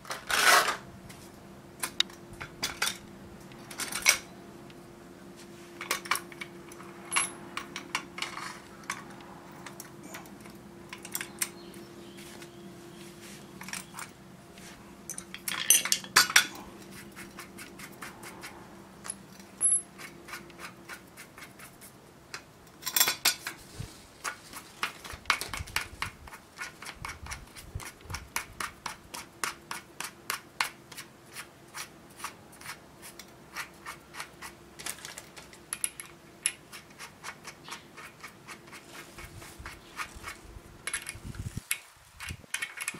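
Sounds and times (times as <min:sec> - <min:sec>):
metal parts clinking and knocking: 0:03.7 - 0:04.3, 0:05.8 - 0:11.6, 0:15.1 - 0:16.6, 0:19.0 - 0:19.9, 0:22.8 - 0:23.6, 0:34.8 - 0:36.6, 0:40.8 - 0:42.9.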